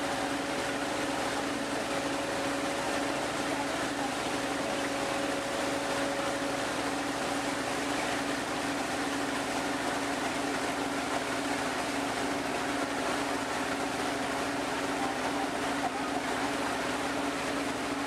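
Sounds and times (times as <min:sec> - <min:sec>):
boat engine humming: 0:00.0 - 0:18.0
rushing water: 0:00.0 - 0:18.0.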